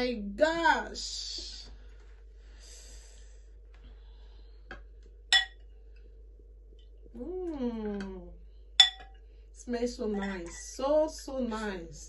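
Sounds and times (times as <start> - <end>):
metal ladle clinking glass bowl: 8.8 - 9.1.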